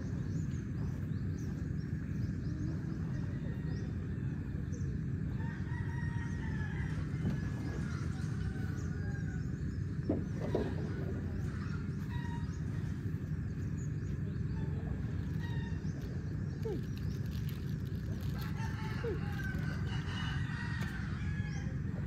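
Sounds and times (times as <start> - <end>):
birds calling: 0.0 - 22.0
low background rumble: 0.0 - 22.0
roosters crowing: 5.2 - 9.8, 10.6 - 13.4, 14.5 - 17.1, 17.8 - 22.0.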